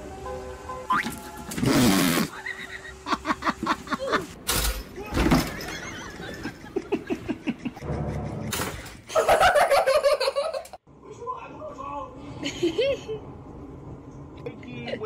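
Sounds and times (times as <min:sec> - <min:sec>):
people laughing: 0:02.3 - 0:04.4, 0:05.0 - 0:10.8
people talking: 0:14.4 - 0:15.0.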